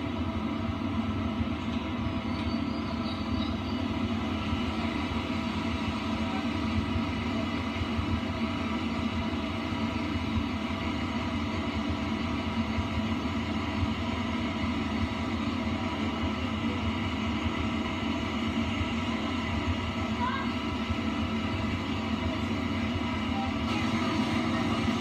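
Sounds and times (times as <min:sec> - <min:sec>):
train rumble from on board: 0:00.0 - 0:25.0.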